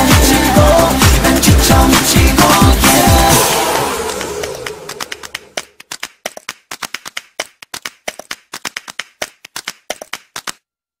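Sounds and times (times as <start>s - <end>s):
sharp claps: 3.3s - 10.6s.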